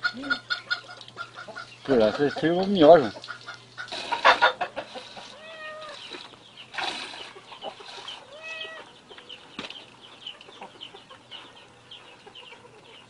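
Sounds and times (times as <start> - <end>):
birds chirping: 0.0 - 13.0
kitten meowing: 5.3 - 6.0, 8.3 - 8.9.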